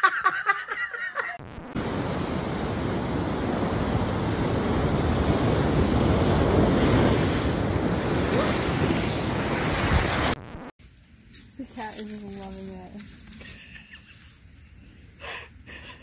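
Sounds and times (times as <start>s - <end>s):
ocean waves breaking: 1.8s - 10.4s.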